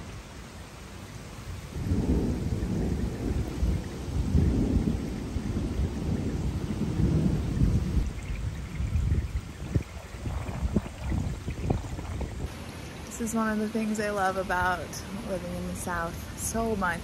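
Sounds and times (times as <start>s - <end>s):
rain falling: 0.0s - 17.0s
low thunder rumble: 1.4s - 12.5s.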